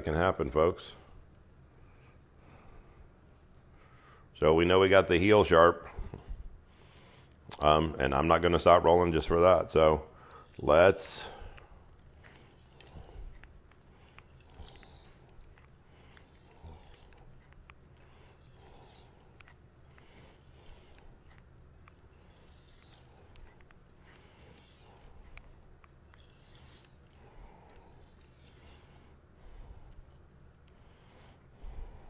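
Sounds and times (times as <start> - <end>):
knife scraping on whetstone: 10.3 - 11.4, 12.2 - 29.0.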